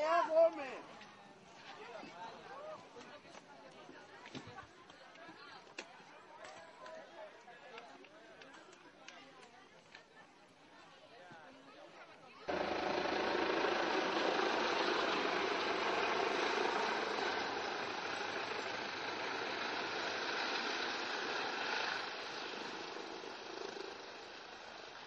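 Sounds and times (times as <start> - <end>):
helicopter rotor and turbine: 12.5 - 25.0.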